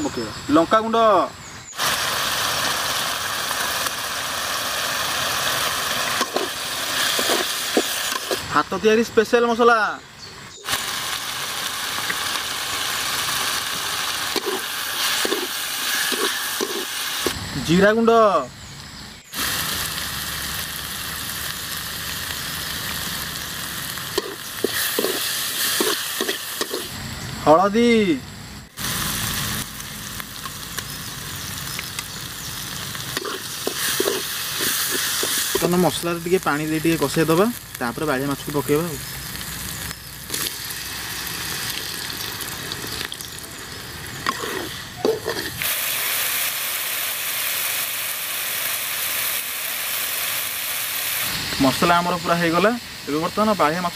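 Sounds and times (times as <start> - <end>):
paste sizzling in hot oil: 0.4 - 9.5, 10.6 - 17.4, 19.2 - 27.0, 28.7 - 53.9
metal spatula scraping pan: 44.2 - 45.6.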